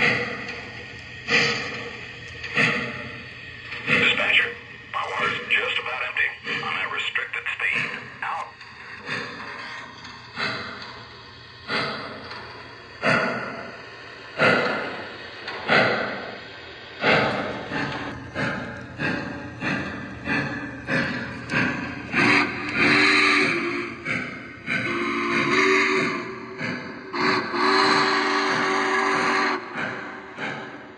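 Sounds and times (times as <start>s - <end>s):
model steam locomotive chuffing: 0.0s - 30.9s
steam whistle: 22.2s - 24.0s, 24.7s - 26.5s, 27.1s - 29.8s.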